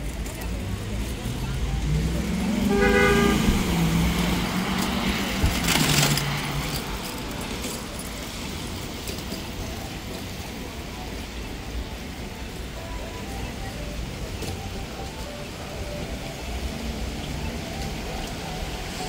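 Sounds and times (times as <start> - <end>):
traffic hiss on wet street: 0.0 - 19.0
vehicle passing: 0.2 - 9.0.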